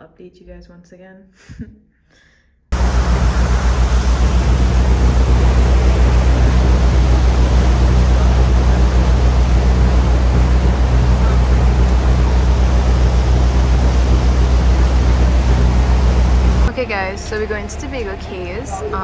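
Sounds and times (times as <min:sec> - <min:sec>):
heavy wind: 0:02.8 - 0:16.7
rushing water: 0:02.8 - 0:16.7
boat engine running: 0:02.8 - 0:19.0.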